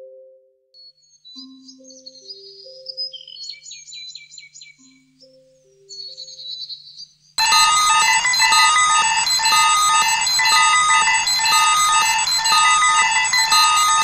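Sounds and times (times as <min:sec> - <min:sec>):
bird chirping: 0:01.0 - 0:07.2
alarm clock beeping: 0:07.4 - 0:14.0.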